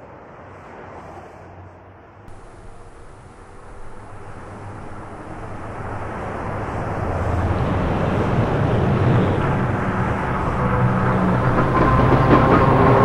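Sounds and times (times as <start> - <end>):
low hum: 2.3 - 13.0
vehicle rumbling: 2.3 - 13.0.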